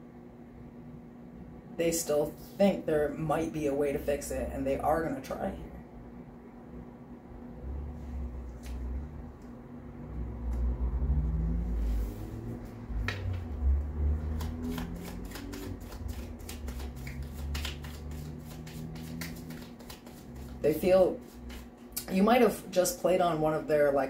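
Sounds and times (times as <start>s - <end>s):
cards being shuffled: 14.2s - 22.0s
cards rubbing and bumping: 14.2s - 22.0s.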